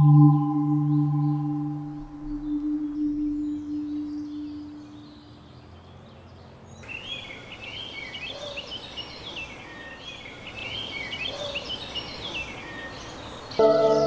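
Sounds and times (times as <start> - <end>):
low steady tone: 0.0 - 5.5, 13.6 - 14.0
songbirds singing: 0.0 - 14.0
outdoor hiss: 6.8 - 13.6.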